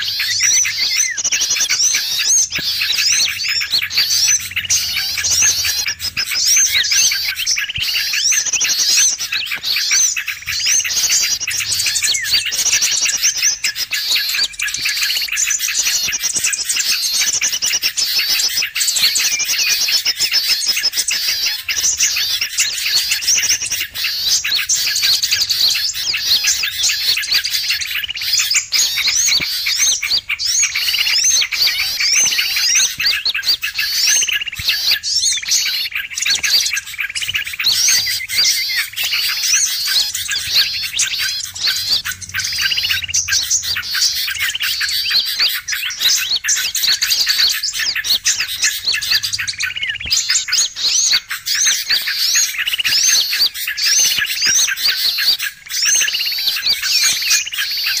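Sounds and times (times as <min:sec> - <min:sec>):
songbirds chirping and trilling: 0:00.0 - 0:58.0.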